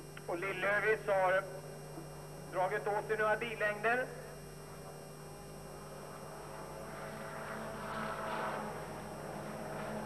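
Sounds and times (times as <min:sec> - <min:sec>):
steady electrical hum: 0:00.0 - 0:10.0
race car engines: 0:04.7 - 0:10.0.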